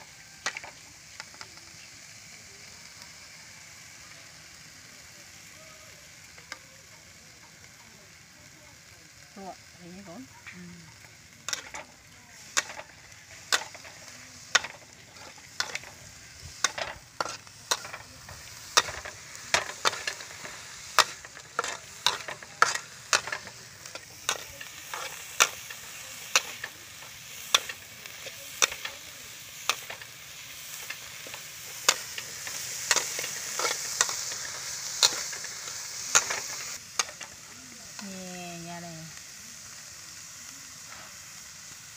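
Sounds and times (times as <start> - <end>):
sizzling hiss: 0.0 - 41.9
metal spatula scraping a wok: 11.4 - 37.4.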